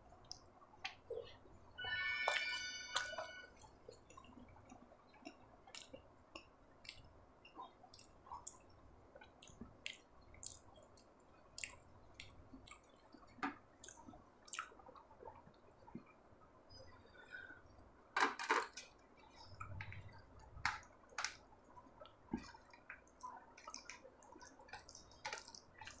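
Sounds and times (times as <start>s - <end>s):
brief ringing tone: 1.8s - 3.6s
wet chewing mouth clicks: 4.0s - 16.1s, 22.0s - 26.0s.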